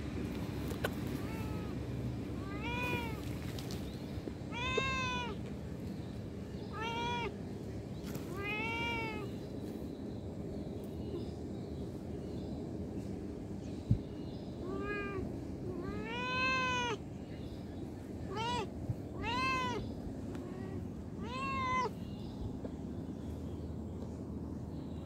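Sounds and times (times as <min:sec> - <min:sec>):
steady background noise: 0:00.0 - 0:25.0
cat meowing: 0:01.2 - 0:01.8, 0:02.4 - 0:03.4, 0:04.5 - 0:05.4, 0:06.7 - 0:07.4, 0:08.3 - 0:09.4, 0:14.6 - 0:17.0, 0:18.3 - 0:19.8, 0:20.4 - 0:22.0.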